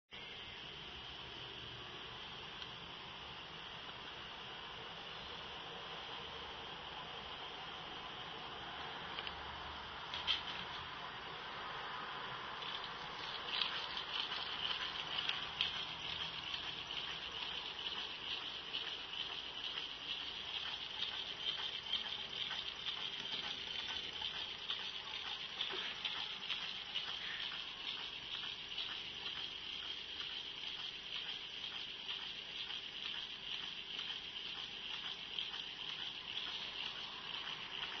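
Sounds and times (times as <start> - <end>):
steady hiss: 0.1 - 38.0
small engine rattling clicks: 12.6 - 38.0.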